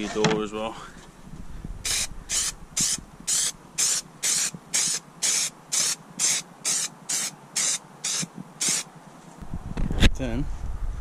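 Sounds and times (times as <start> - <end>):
aerosol can spraying in bursts: 1.9 - 8.9.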